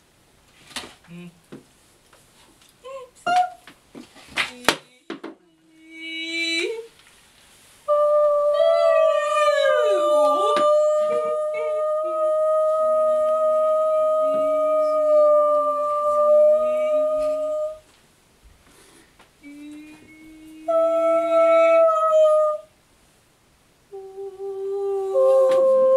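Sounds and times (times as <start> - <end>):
woman humming: 1.0 - 1.4, 2.8 - 3.6, 4.5 - 6.9, 7.9 - 17.9, 19.4 - 22.7, 23.9 - 25.9
women singing sustained tones: 4.7 - 7.0, 7.8 - 17.9, 19.4 - 22.7, 23.9 - 25.9.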